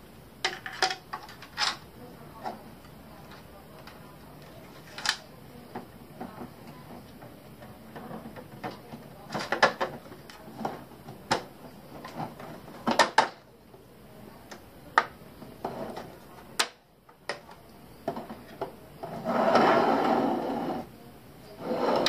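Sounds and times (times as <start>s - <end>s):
plastic parts clicking and knocking: 0.4s - 1.8s, 7.9s - 13.4s.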